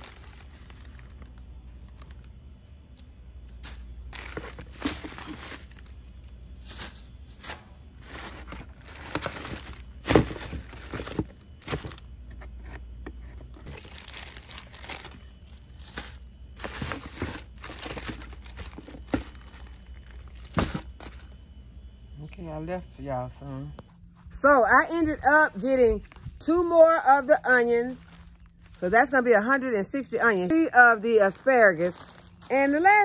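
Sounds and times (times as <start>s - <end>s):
plastic bags crinkling: 0.0s - 2.4s, 3.6s - 12.1s, 13.6s - 21.2s, 31.1s - 33.0s.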